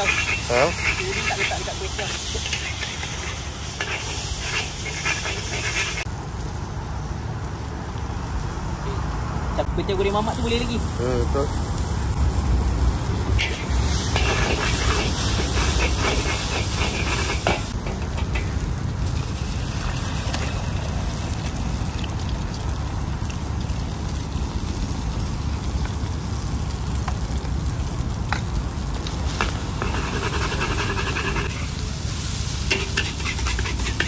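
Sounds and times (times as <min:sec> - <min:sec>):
metal ladle scraping a wok: 0:00.0 - 0:06.1, 0:13.4 - 0:18.6, 0:29.8 - 0:31.7, 0:32.5 - 0:34.0
noodles sizzling in a wok: 0:00.0 - 0:06.1, 0:10.4 - 0:34.0
gas burner rumble: 0:00.0 - 0:09.0, 0:09.6 - 0:34.0.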